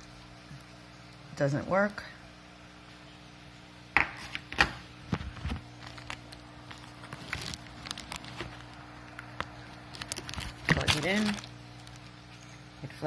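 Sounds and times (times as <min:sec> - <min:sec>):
faint steady hum: 0:00.0 - 0:13.0
sharp knocks on countertop: 0:04.0 - 0:04.8
plastic bag crinkling: 0:04.2 - 0:12.6.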